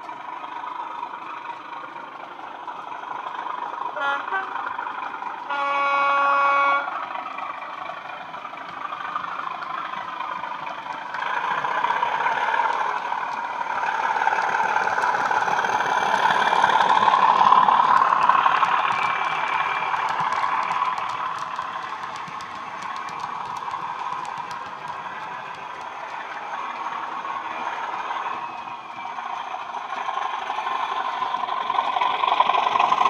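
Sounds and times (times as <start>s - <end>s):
diesel engine sound: 0.0s - 33.0s
model locomotive horn: 4.0s - 4.6s, 5.4s - 7.0s.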